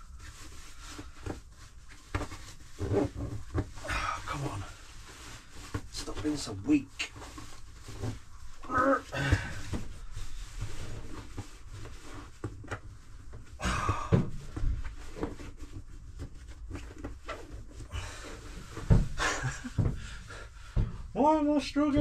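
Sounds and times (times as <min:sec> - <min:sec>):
fabric rustling and bumping: 0:00.0 - 0:22.0
person straining breaths: 0:08.6 - 0:10.4, 0:13.6 - 0:14.6, 0:17.8 - 0:21.1.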